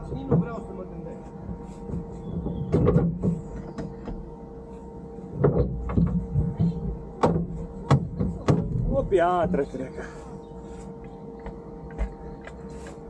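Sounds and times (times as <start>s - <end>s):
sharp knocks and clunks: 0.0s - 0.6s, 1.9s - 4.2s, 5.4s - 9.0s
car engine humming: 0.0s - 13.0s.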